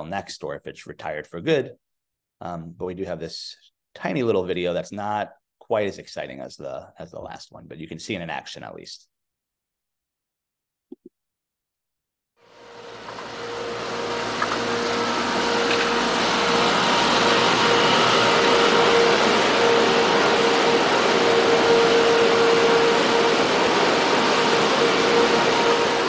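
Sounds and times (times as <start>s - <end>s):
thin steady whine: 12.5s - 26.0s
monorail train rushing: 12.6s - 26.0s.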